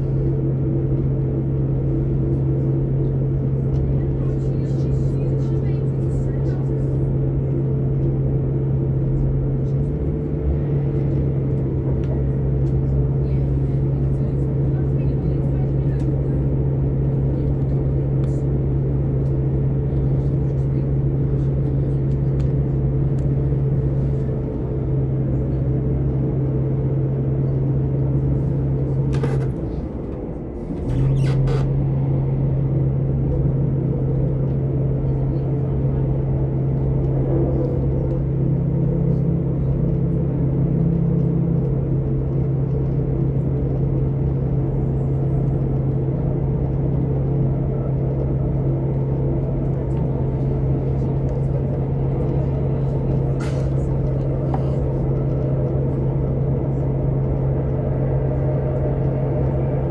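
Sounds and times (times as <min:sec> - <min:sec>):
diesel train engine drone: 0:00.0 - 0:59.9
train running rumble: 0:00.0 - 0:59.9.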